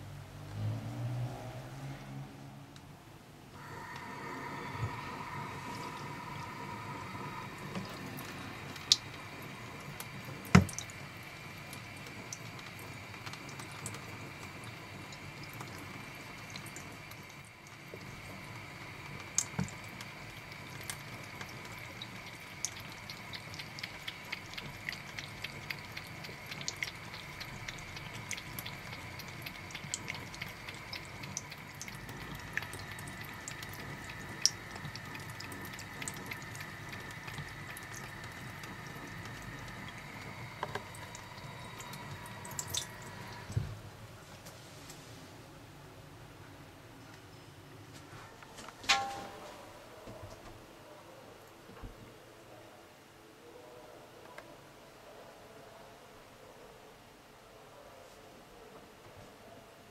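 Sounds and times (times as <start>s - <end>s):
cat lapping water: 3.6s - 43.8s
tap water trickling: 3.6s - 43.8s.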